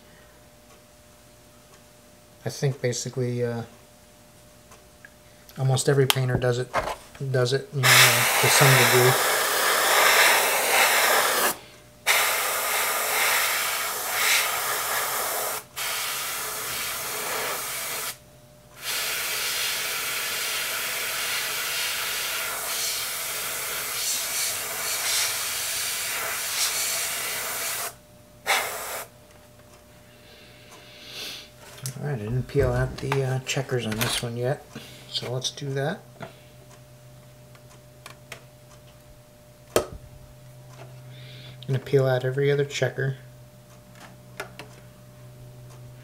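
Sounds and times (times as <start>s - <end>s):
airbrush spraying hiss: 7.8s - 18.2s, 18.8s - 29.1s.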